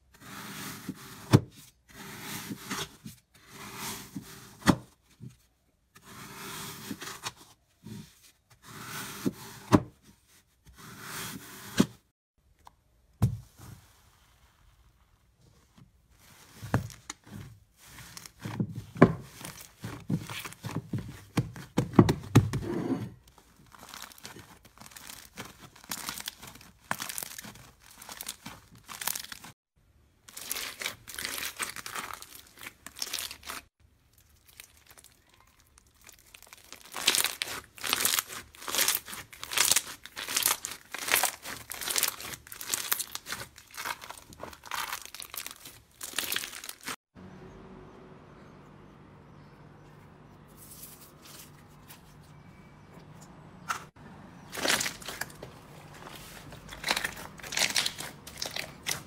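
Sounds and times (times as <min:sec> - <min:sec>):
slime squishing: 0:23.5 - 0:29.5, 0:30.2 - 0:47.0, 0:54.5 - 0:59.0
bead slime crackling: 0:23.7 - 0:29.5, 0:30.3 - 0:47.0, 0:56.6 - 0:59.0.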